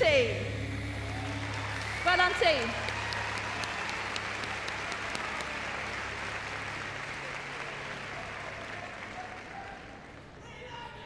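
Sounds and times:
audience applauding: 0:01.0 - 0:10.4.

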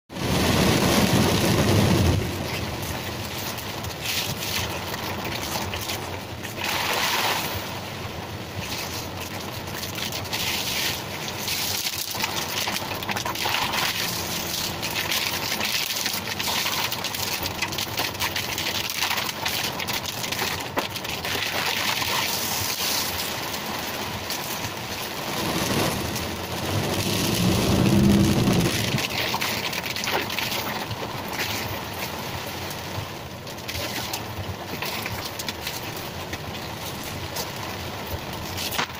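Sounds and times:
heavy rain on car roof: 0:00.1 - 0:38.9
low rumble: 0:24.9 - 0:29.5.

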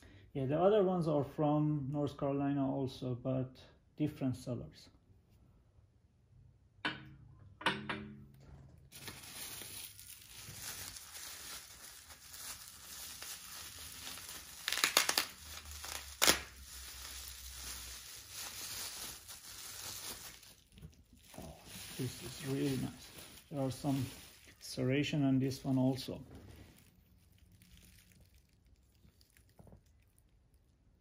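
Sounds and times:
bubble wrap cracks: 0:08.9 - 0:24.8, 0:25.4 - 0:31.0
bubble wrap crinkling: 0:08.9 - 0:31.0.

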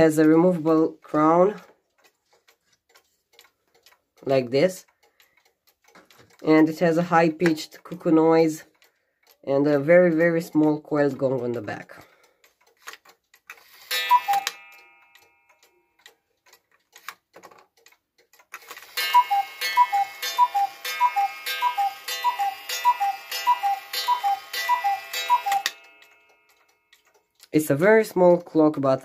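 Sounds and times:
faint clock ticking: 0:00.0 - 0:29.0
cuckoo clock call: 0:13.6 - 0:15.9, 0:18.8 - 0:27.0.

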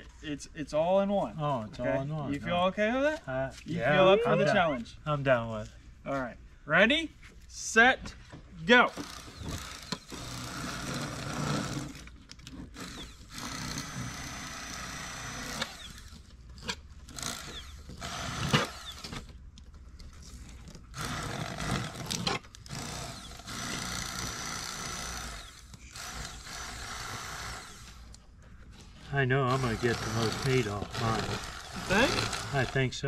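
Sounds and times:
electric knife motor buzzing: 0:09.0 - 0:12.1, 0:12.7 - 0:16.3, 0:17.1 - 0:19.3, 0:20.9 - 0:28.2, 0:29.5 - 0:32.8.

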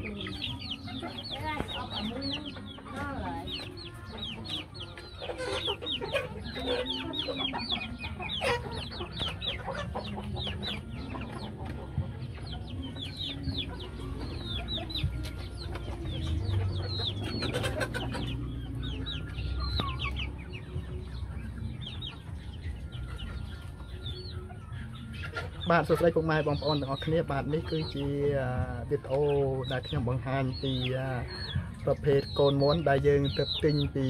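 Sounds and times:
chicks peeping: 0:00.0 - 0:34.0.

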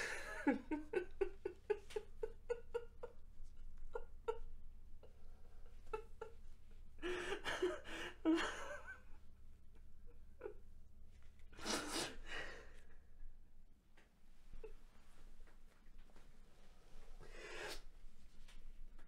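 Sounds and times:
man sobbing: 0:00.0 - 0:06.4, 0:07.0 - 0:09.2
faint low hum: 0:00.0 - 0:19.0.

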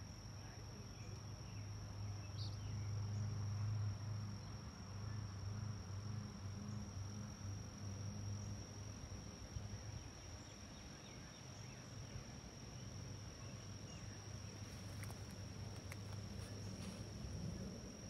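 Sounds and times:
insects trilling: 0:00.0 - 0:18.0
low background hum: 0:00.0 - 0:18.0
faint clicks: 0:14.9 - 0:16.5.

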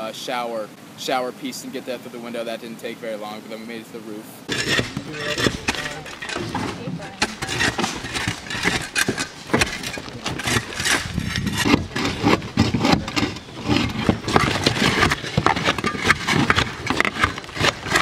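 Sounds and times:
clatter of shingle pieces: 0:04.5 - 0:11.8, 0:12.9 - 0:18.0
shovels scraping shingles: 0:04.5 - 0:18.0.

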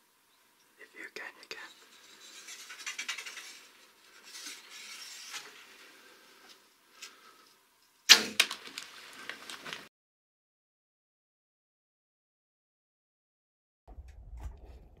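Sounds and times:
faint rustling: 0:01.4 - 0:07.6
small clicks and rattles: 0:01.9 - 0:04.6
bow string release crack: 0:08.1 - 0:08.9.

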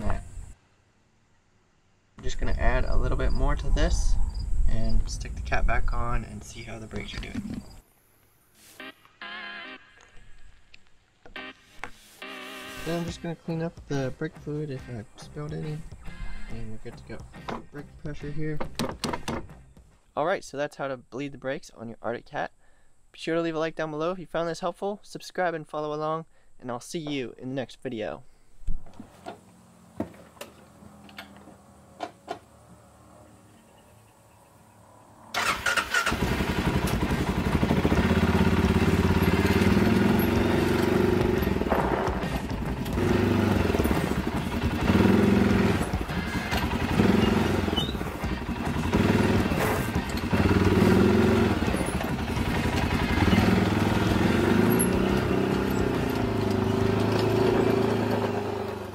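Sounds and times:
quad bike engine revving: 0:35.3 - 0:58.9.

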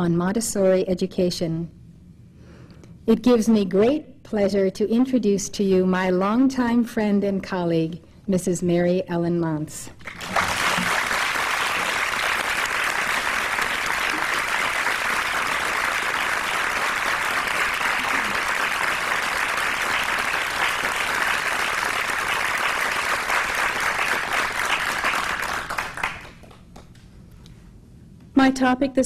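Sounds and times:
audience applauding: 0:10.0 - 0:27.0.

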